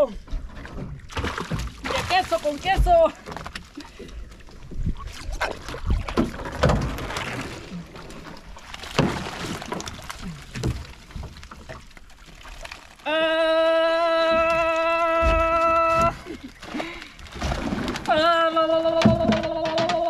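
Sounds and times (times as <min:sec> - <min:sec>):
water sloshing around boat: 0:00.0 - 0:20.0
knocks and thumps: 0:18.8 - 0:20.0.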